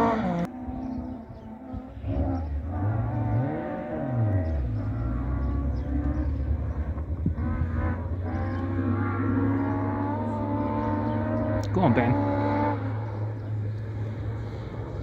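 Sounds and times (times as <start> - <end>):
rally car engine revving: 0.0 - 15.0.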